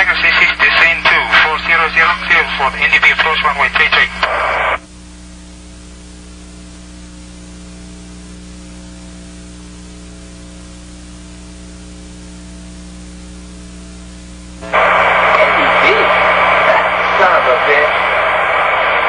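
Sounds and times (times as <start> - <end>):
person speaking: 0.0 - 4.2, 14.6 - 18.2
low electrical hum: 0.0 - 19.0
steady hiss: 14.6 - 19.0.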